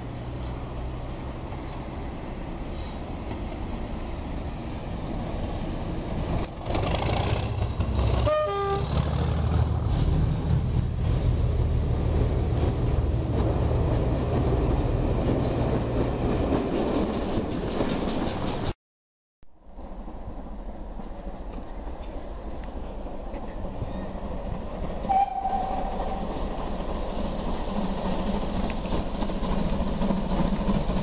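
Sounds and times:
diesel locomotive engine rumbling: 0.0 - 18.8, 19.6 - 31.0
steam locomotive: 0.0 - 18.8, 19.8 - 31.0
train horn toot: 8.2 - 8.9, 25.1 - 26.2
train wheels clattering: 11.7 - 18.8.

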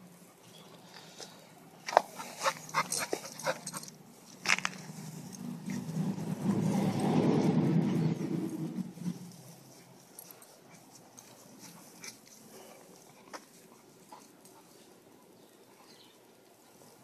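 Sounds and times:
rustling in grass: 4.0 - 17.0.

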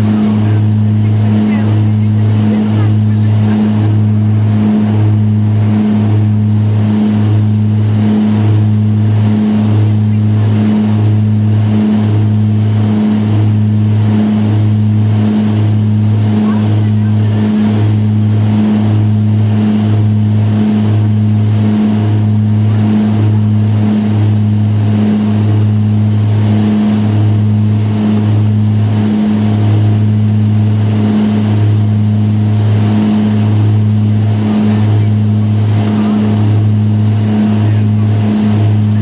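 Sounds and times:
turboprop cabin drone: 0.0 - 39.0.

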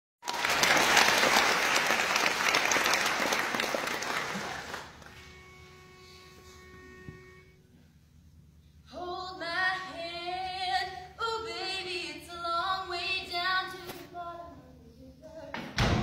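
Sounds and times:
steady pitch note: 5.2 - 7.9
girls singing a cappella: 8.9 - 15.6.

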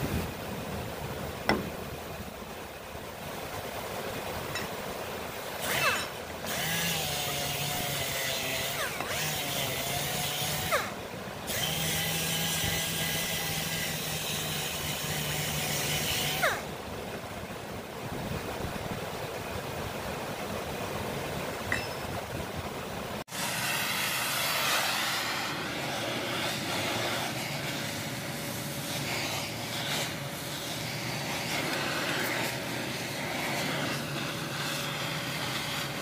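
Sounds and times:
steady background hiss: 0.0 - 36.0
electric grinder running: 6.5 - 10.8.

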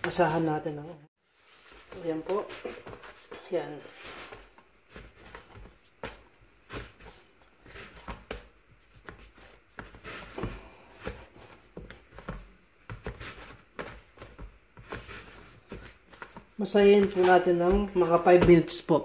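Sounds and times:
dough kneading in a bowl: 1.2 - 19.0.

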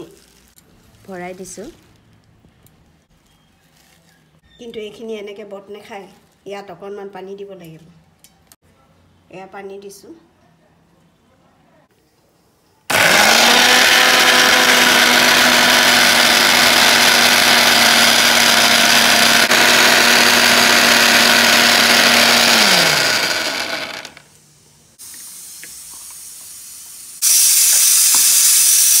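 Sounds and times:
kitchen mixer grinder running: 12.9 - 24.3.

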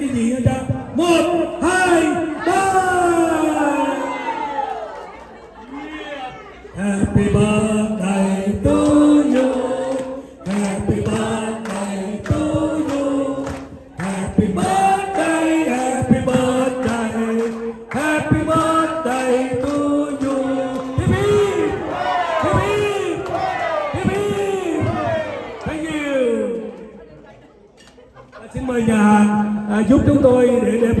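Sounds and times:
group of people singing: 6.7 - 25.5
people clapping: 8.7 - 25.9.

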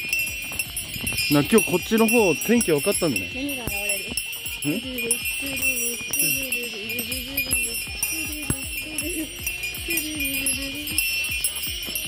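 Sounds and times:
bell jingling: 0.0 - 12.0
running footsteps: 0.0 - 12.0
person humming: 4.6 - 11.6.

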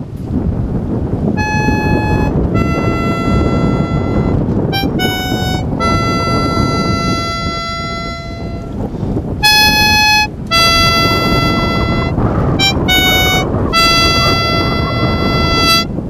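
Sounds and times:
low rumble: 0.0 - 16.0
buzzy plastic horn blasts: 1.3 - 16.0.

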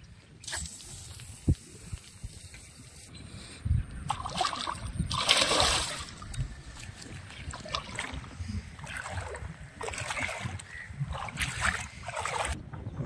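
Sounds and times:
water sloshing and splashing: 4.0 - 12.6.

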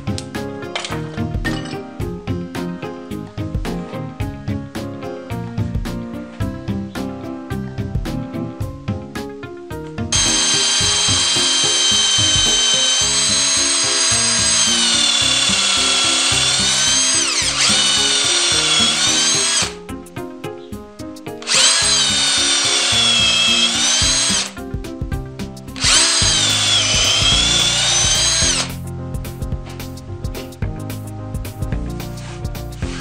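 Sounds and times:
background music: 0.0 - 33.0
cordless drill boring into wood: 10.2 - 19.8, 21.4 - 24.6, 25.8 - 28.8.

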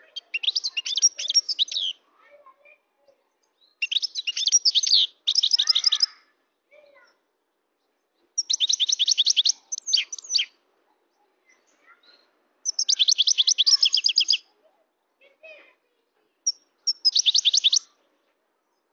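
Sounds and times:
goldfinch twittering: 3.8 - 6.1, 8.4 - 10.5, 12.6 - 14.4, 16.5 - 17.9.

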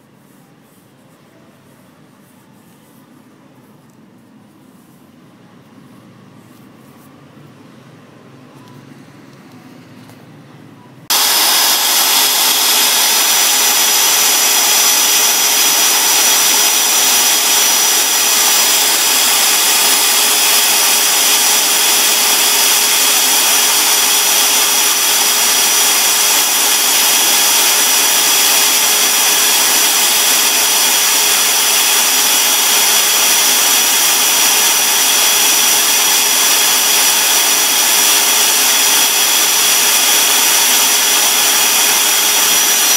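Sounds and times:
small power tool whirring: 11.1 - 42.9.

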